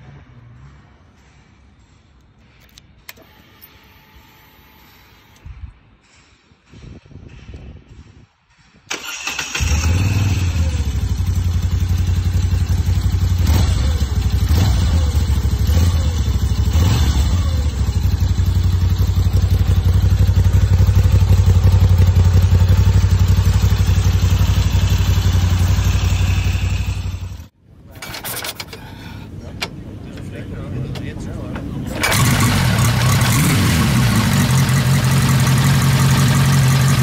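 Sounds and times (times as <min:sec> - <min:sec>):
motorcycle engine starting: 0:08.9 - 0:28.9, 0:31.8 - 0:37.0
motorcycle engine idling: 0:09.6 - 0:27.5, 0:31.9 - 0:37.0.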